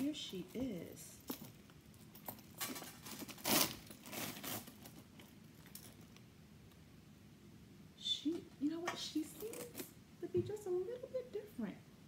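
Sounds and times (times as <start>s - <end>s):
handbag chain and wrapping rustling: 0.0s - 6.3s, 9.2s - 10.0s.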